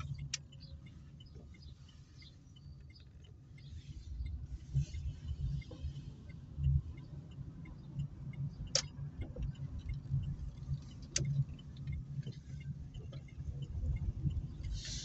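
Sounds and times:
car engine and road rumble: 0.0 - 15.0
sharp clicks: 7.7 - 12.4.

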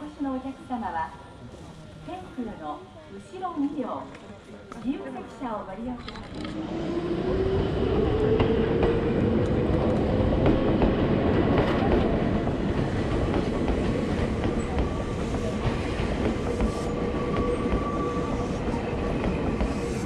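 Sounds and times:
train wheels clickety-clack: 7.9 - 20.0.

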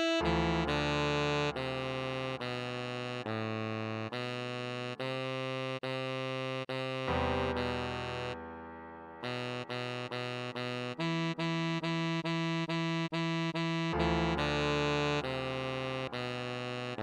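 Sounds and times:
synthesized keyboard chords: 0.0 - 2.5, 6.8 - 17.0
synthesized saxophone melody: 0.0 - 17.0.

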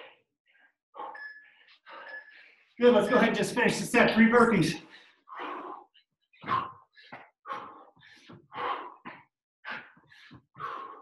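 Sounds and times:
man breathing hard: 4.8 - 11.0.

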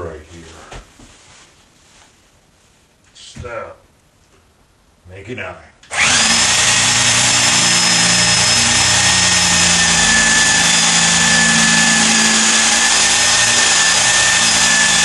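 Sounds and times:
electric drill whining: 5.9 - 15.0.

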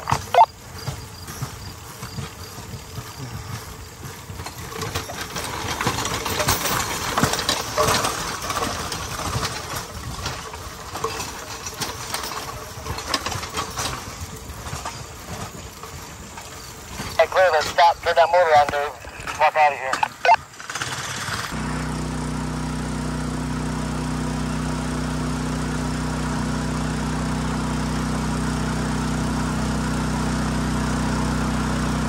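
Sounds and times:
steel wheels rattling on rails: 0.0 - 21.6
small engine humming: 0.0 - 32.0.

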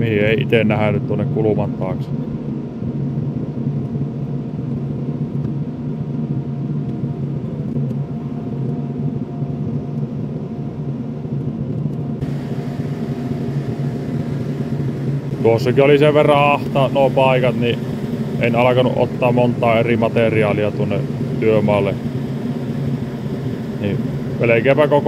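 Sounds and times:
faint steady whine: 0.0 - 25.0
excavator diesel engine droning: 12.2 - 25.0.

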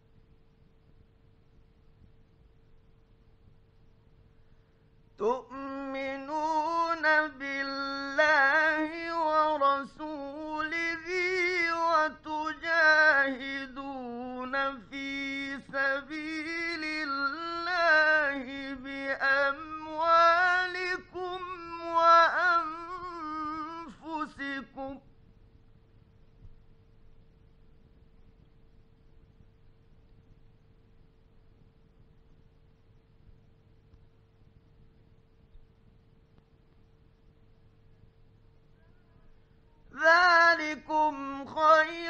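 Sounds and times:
faint steady hum: 0.0 - 42.0
man chanting: 5.2 - 25.0, 39.9 - 42.0.

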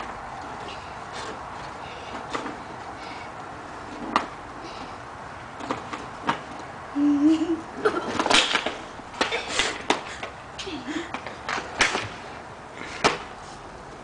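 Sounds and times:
inline skates clicking on concrete: 0.0 - 4.9, 5.5 - 6.7, 8.0 - 14.0
skater falling onto pavement: 8.0 - 10.4, 11.1 - 12.3.

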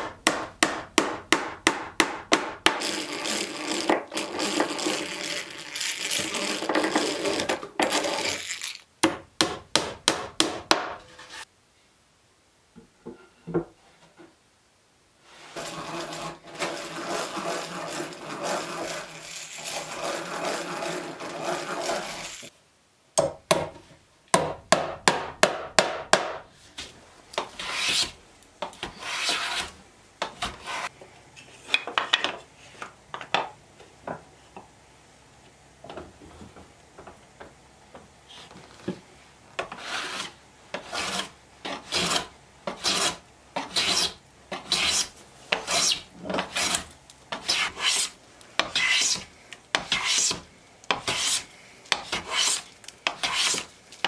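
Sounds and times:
hand drill grinding into wood: 2.7 - 8.9, 15.5 - 22.5
short scrapes: 11.0 - 11.5.

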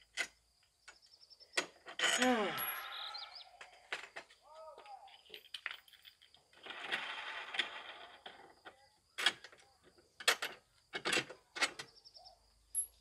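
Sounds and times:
scraping rustle: 6.2 - 8.6.

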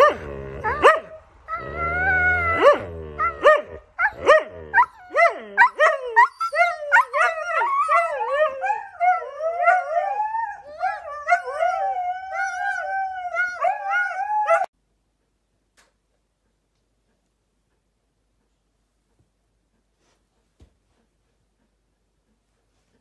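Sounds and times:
huskies howling: 0.0 - 14.7.

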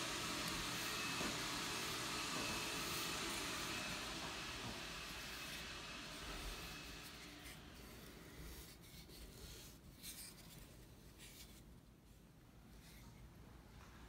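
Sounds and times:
paintbrush strokes: 0.1 - 13.9.

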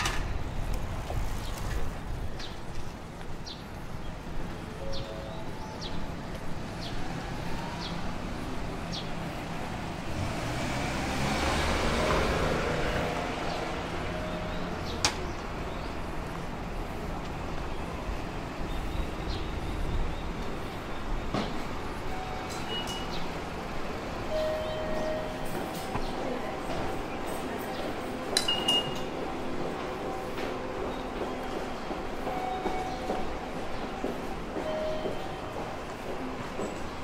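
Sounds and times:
street traffic: 0.0 - 37.0
vehicle passing close by: 9.7 - 14.2.

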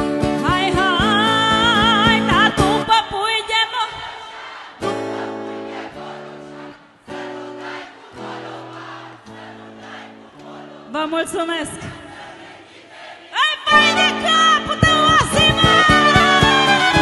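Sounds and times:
vibrato folk melody: 4.8 - 11.4, 13.6 - 17.0
sustained backing chords: 4.8 - 12.6.

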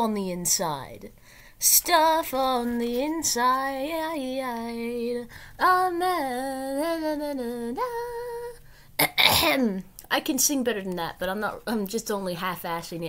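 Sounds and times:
woman singing unaccompanied: 0.0 - 8.7.

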